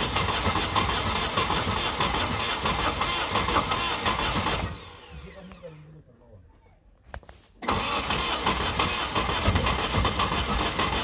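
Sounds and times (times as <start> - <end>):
rough engine turning over: 0.0 - 5.8, 7.6 - 11.0.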